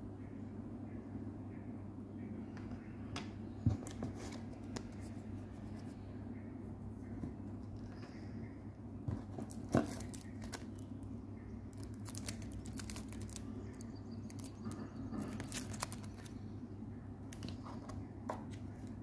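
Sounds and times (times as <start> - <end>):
steady low hum: 0.0 - 19.0
plastic sleeve crinkling: 11.7 - 16.3.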